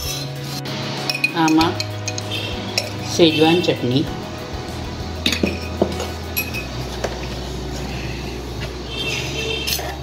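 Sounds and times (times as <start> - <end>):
metal spoon clinking on bowl: 1.0 - 3.1, 5.2 - 6.8.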